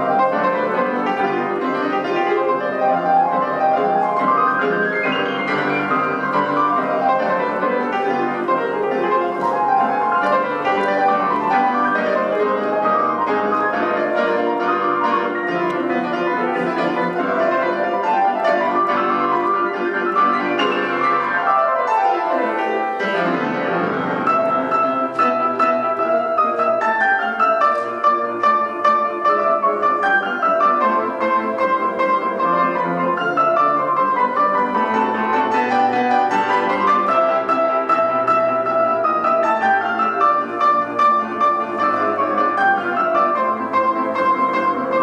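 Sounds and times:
classical piano duet: 0.0 - 45.0.

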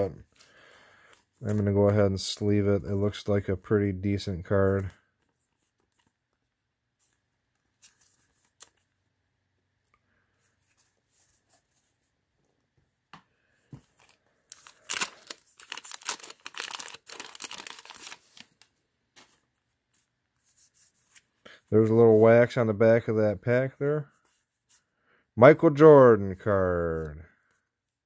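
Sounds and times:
wax paper rustles and clicks: 13.7 - 19.4
wax paper tearing and crinkling: 14.0 - 18.6.

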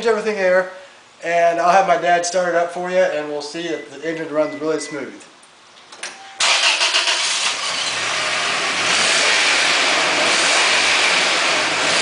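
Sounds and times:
car engine starting and running: 6.4 - 12.0.

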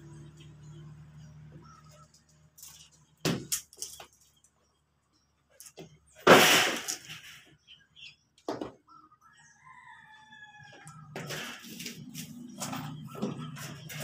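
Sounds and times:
rooster crowing: 9.3 - 11.2
low rumble with scraping: 10.8 - 14.0.

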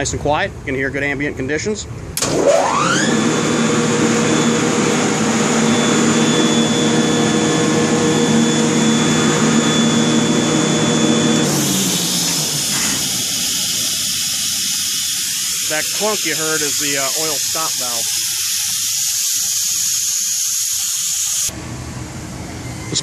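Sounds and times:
electric motor whining and humming: 2.2 - 21.6
loud hiss of air: 8.1 - 21.5.

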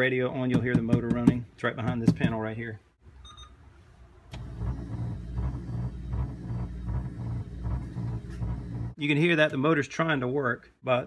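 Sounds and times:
power antenna motor humming: 4.3 - 9.0.

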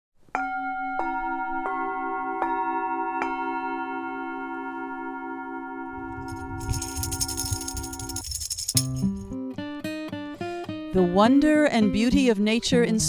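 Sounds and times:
singing bowls ringing: 0.4 - 8.2
high rattle: 6.0 - 9.3.

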